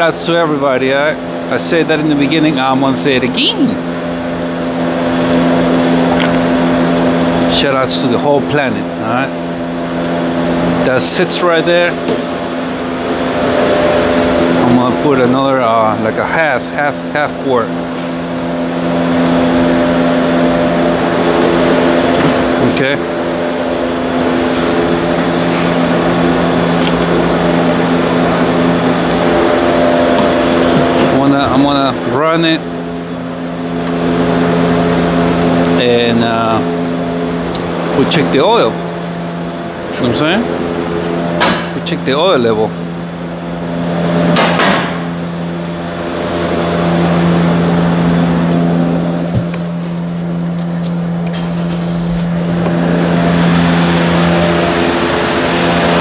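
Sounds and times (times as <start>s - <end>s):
steady machine drone: 0.0s - 56.0s
car engine idling: 19.1s - 34.2s.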